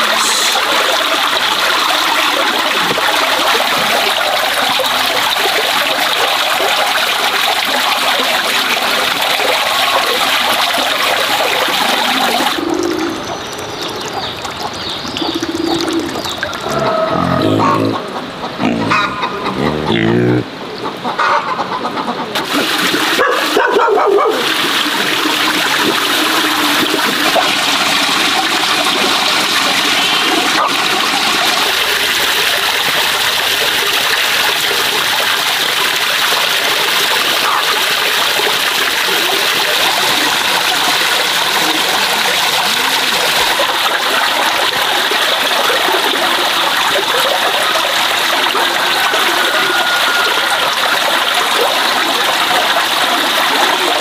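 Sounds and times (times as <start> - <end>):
water splashing into plastic basin: 0.0 - 17.9, 22.4 - 54.0
short animal call: 16.6 - 20.5.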